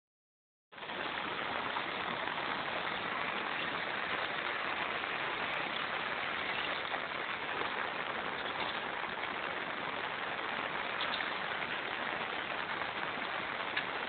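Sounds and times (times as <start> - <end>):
steady rain falling: 0.7 - 14.0.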